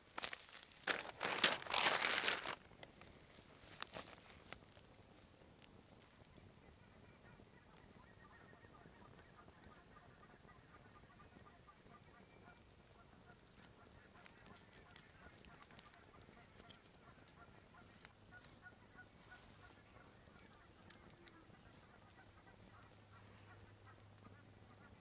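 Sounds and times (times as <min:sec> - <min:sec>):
distant honking bird calls: 0:06.4 - 0:25.0.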